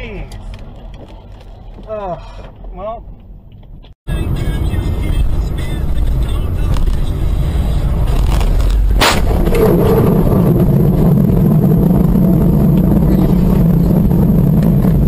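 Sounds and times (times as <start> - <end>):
low rumble: 4.1 - 15.0
car crash: 7.8 - 15.0.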